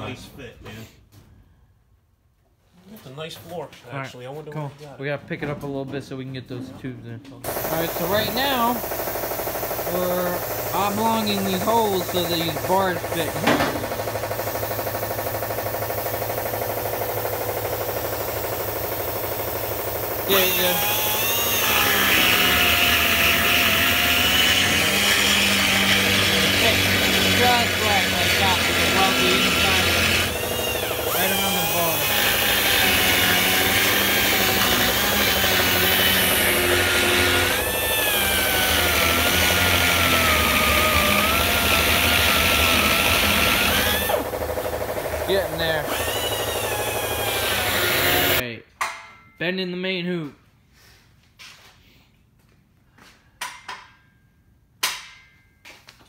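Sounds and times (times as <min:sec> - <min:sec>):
pneumatic die grinder whining: 0:07.5 - 0:48.4.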